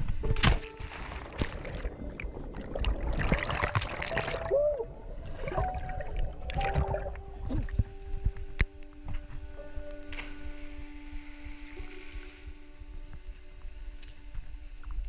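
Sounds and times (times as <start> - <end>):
underwater bubbling and gurgling: 0.0 - 8.8
splash into water: 0.4 - 4.6.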